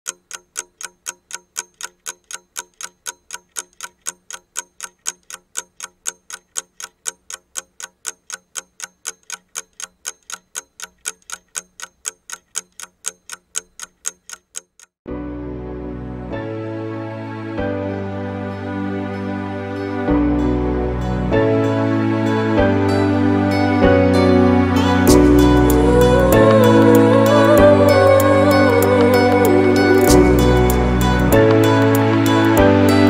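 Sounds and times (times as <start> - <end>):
sharp clock ticking: 0.1 - 15.0, 25.0 - 33.0.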